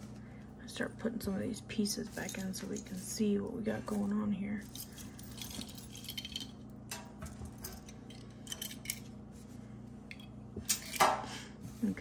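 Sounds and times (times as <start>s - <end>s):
metal jewelry clinking: 2.1s - 3.1s, 3.9s - 6.7s, 7.6s - 9.1s.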